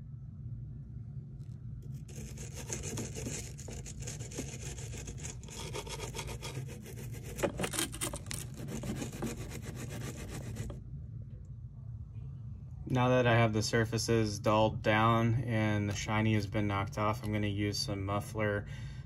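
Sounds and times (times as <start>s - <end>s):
wire brush scrubbing metal: 2.0s - 10.8s.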